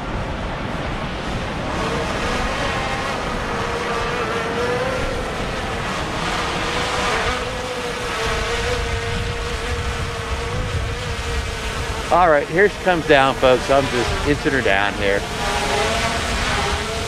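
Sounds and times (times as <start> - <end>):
drone propellers whining: 0.0 - 17.0
wind rumble on microphone: 0.0 - 17.0.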